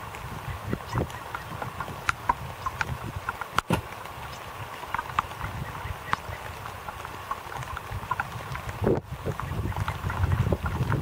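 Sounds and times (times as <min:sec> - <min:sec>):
wind rumbling on microphone: 0:00.0 - 0:11.0
light ticks and taps: 0:00.9 - 0:05.5, 0:06.1 - 0:08.8.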